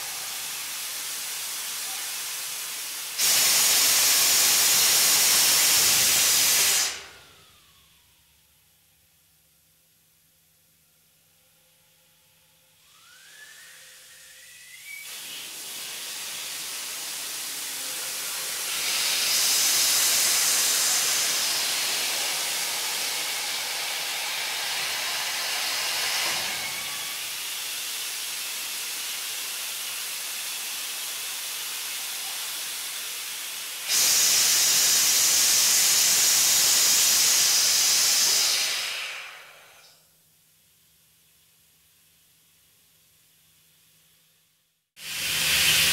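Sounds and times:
compressed air hissing: 0.0 - 7.3, 12.9 - 40.0, 45.0 - 45.9.

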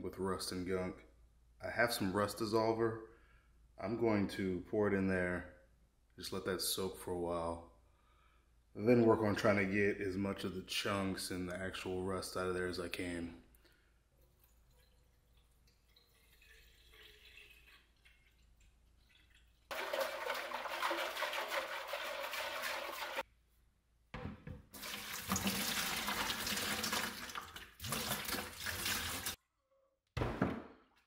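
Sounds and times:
water pouring into bucket: 14.2 - 23.2, 24.8 - 29.4
water sloshing in metal tank: 14.2 - 23.2, 24.7 - 29.4
knocks: 24.1 - 24.7, 30.2 - 30.8.

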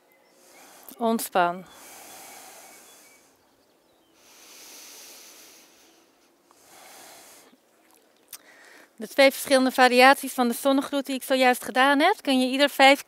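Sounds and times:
person breathing slowly: 0.3 - 1.0, 1.6 - 3.5, 4.1 - 7.6, 8.3 - 9.0.

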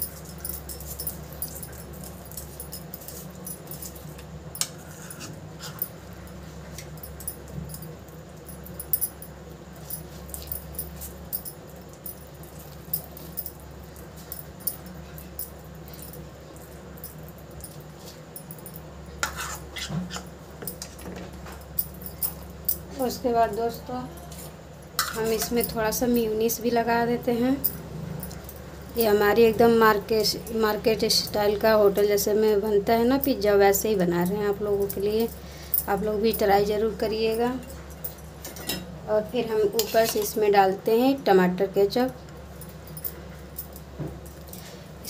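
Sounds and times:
steady low hum: 0.0 - 45.0
metal spoon scraping a plate: 4.6 - 5.8, 19.2 - 20.9, 25.0 - 25.7, 39.7 - 40.4.

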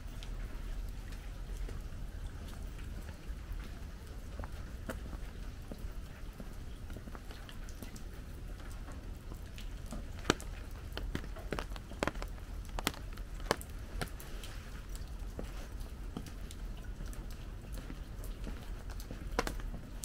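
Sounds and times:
raindrop taps: 0.0 - 20.0.

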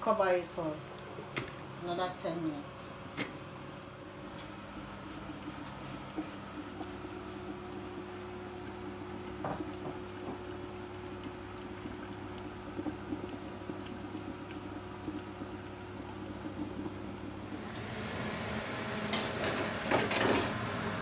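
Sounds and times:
soup bubbling under pot lid: 4.8 - 18.9.

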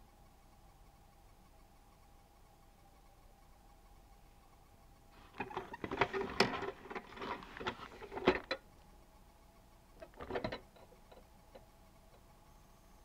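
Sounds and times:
plastic toy and cardboard box handling: 5.2 - 8.5.

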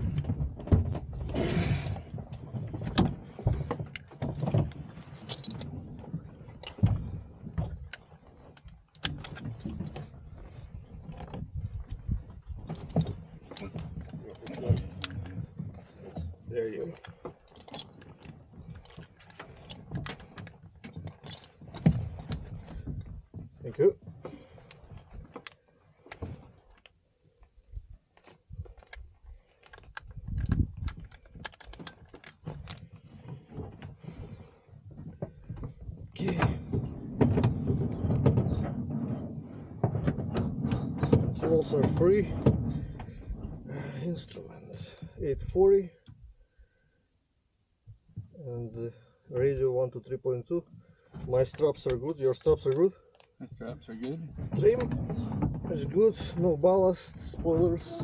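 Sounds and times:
metal buckles clinking: 0.0 - 39.3, 50.9 - 53.4.

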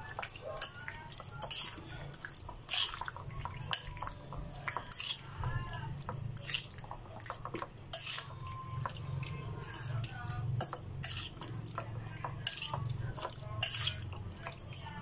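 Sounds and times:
wet squelching of batter: 0.0 - 10.4.

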